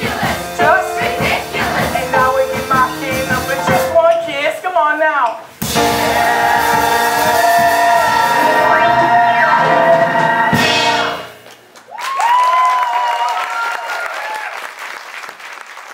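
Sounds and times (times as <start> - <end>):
band and singers holding chord: 0.0 - 3.8, 5.7 - 11.4
audience applauding and cheering: 6.0 - 15.9.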